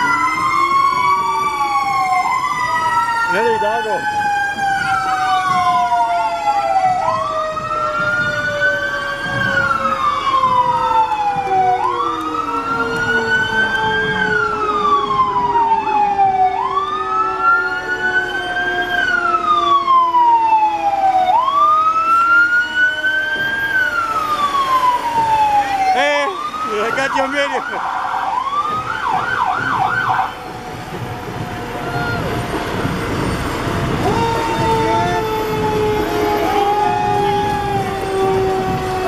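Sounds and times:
fire truck siren wailing: 0.0s - 39.0s
lower siren tone sliding down: 0.0s - 39.0s.

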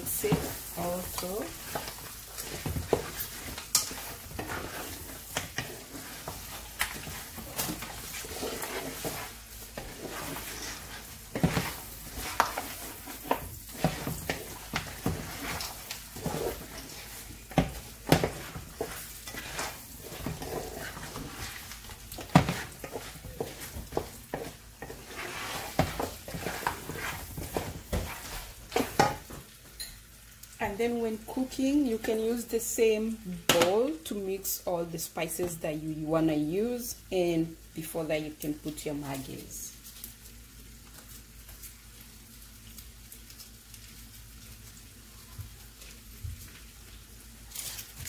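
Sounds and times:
wooden spoon scraping a pot: 0.0s - 29.4s
food sizzling in oil: 0.0s - 34.6s, 38.4s - 48.0s.

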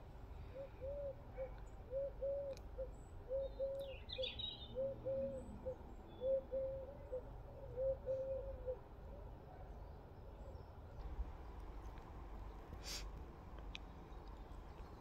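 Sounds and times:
dove cooing: 0.4s - 9.2s
higher bird chirp: 2.0s - 5.5s.

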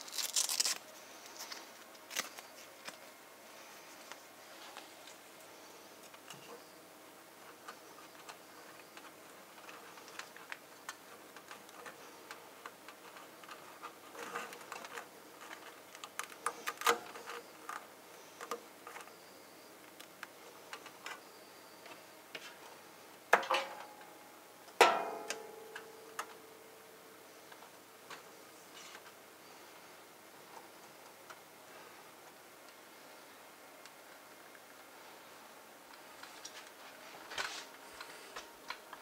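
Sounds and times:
cable handling ticks and taps: 7.5s - 19.2s.

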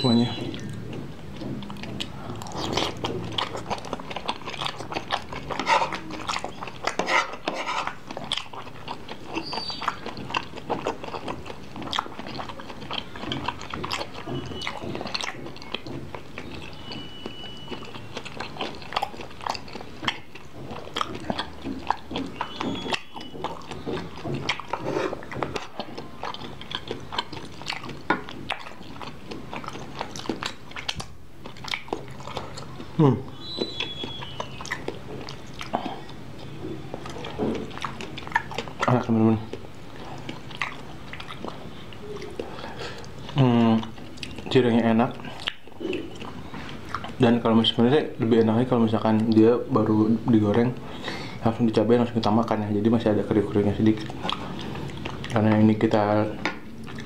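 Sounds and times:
close chewing with mouth clicks: 0.0s - 57.0s.

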